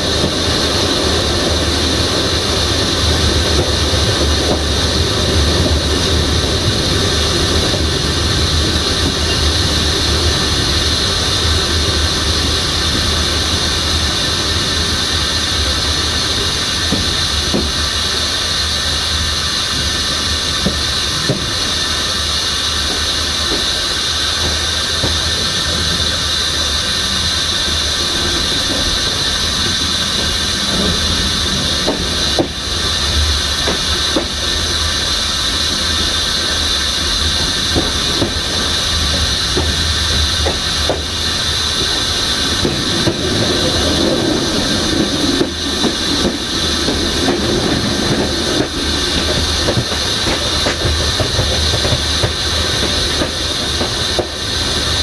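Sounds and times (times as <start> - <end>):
train rumbling on rails: 0.0 - 55.0
wheels squealing: 0.0 - 55.0.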